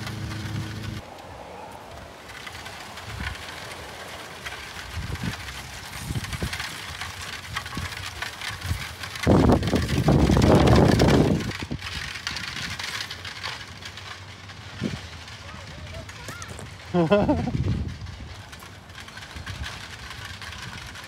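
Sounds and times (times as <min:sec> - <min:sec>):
low rush: 0:00.0 - 0:07.0
horse hooves trotting: 0:00.0 - 0:21.0
wheels crunching over gravel: 0:00.0 - 0:21.0.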